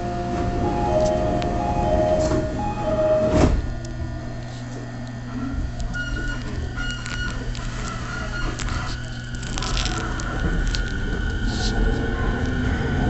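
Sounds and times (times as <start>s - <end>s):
train equipment hum: 0.0s - 13.0s
train doors shutting thud: 0.3s - 3.8s
two-note door chime: 0.5s - 3.5s.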